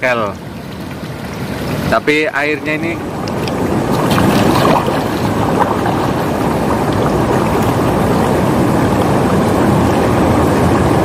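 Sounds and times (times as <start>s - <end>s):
wading splashes: 0.0s - 11.0s
river water rushing over stones: 3.0s - 11.0s.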